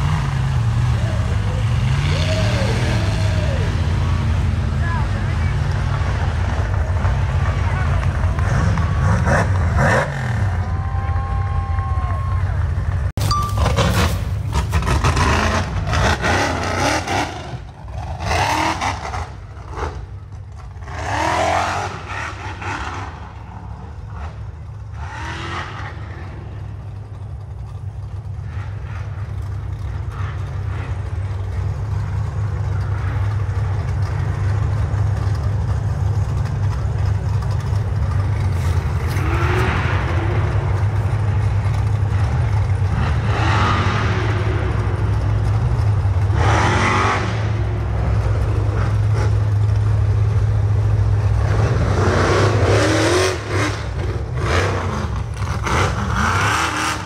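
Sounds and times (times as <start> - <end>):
race vehicle engines revving: 0.0 - 57.0.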